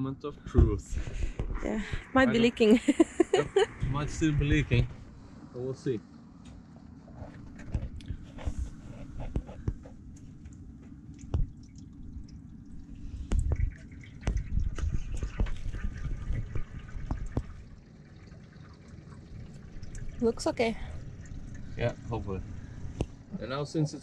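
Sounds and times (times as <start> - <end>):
water dripping and splashing: 9.4 - 23.3
water pouring from a bottle: 11.2 - 23.2.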